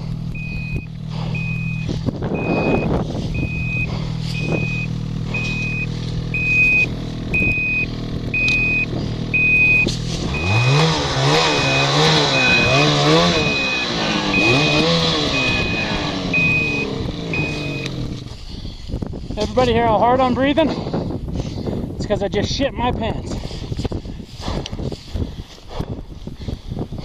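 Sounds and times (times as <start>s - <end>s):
engine revving: 0.0s - 18.4s
reversing alarm beeping: 0.3s - 18.0s.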